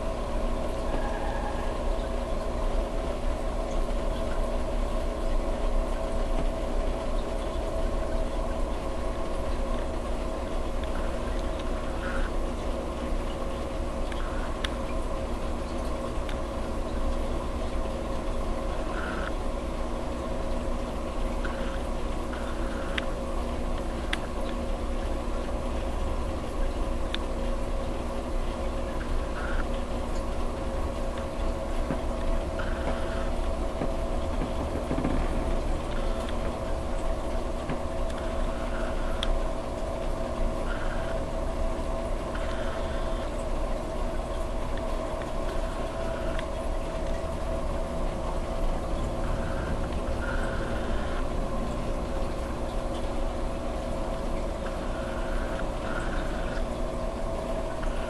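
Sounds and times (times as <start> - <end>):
aquarium pump hum: 0.0 - 58.0
circulating water: 0.0 - 58.0
faint clicks: 10.7 - 12.3, 21.4 - 24.6, 31.1 - 41.2, 44.3 - 47.2.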